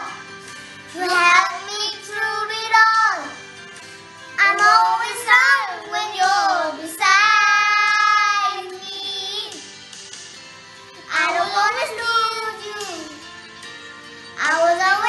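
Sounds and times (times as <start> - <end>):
children singing: 4.4 - 9.6.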